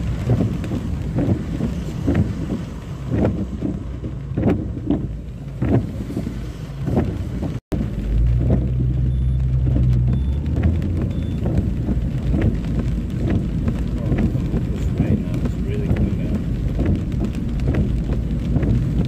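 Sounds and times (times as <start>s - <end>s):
car engine drone: 0.0s - 19.0s
heavy rain on car: 0.0s - 19.0s.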